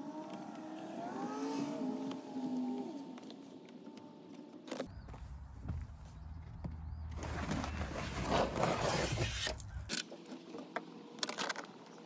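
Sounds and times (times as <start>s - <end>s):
floor mat scraping over carpet: 7.2s - 9.5s.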